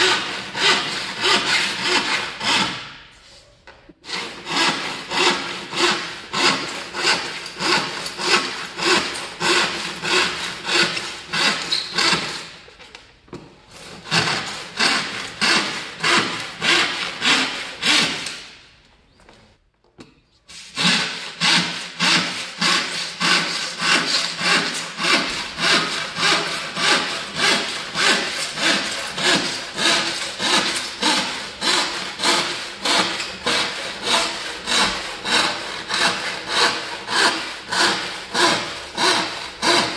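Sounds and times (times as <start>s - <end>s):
handsaw ripping wooden board: 20.8s - 39.9s.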